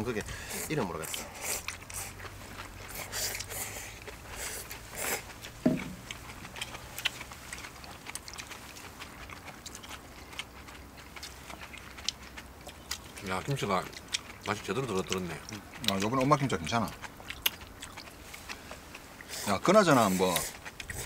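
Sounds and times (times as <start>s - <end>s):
chewing and mouth sounds: 0.0s - 21.0s
sharp knock: 5.6s - 6.0s.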